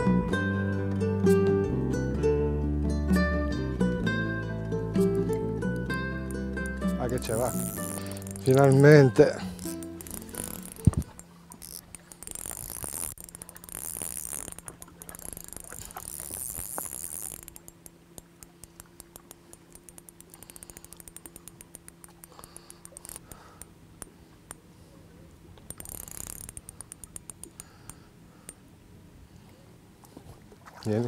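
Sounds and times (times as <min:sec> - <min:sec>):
fishing reel drag clicking: 0:05.2 - 0:24.6, 0:25.6 - 0:28.6.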